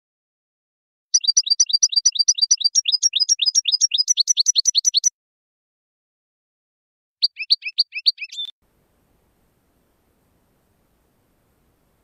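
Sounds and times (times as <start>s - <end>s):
finch chirping song: 1.2s - 5.1s, 7.2s - 8.6s.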